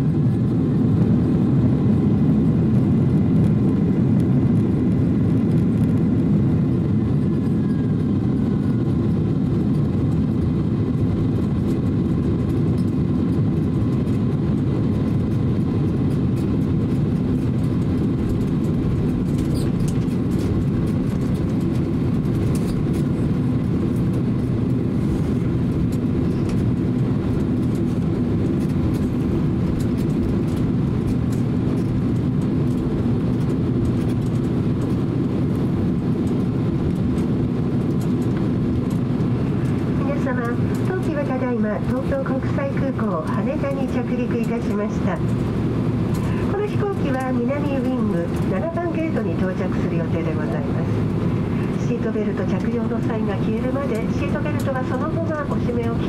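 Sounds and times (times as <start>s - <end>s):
aircraft cabin rumble: 0.0s - 56.0s.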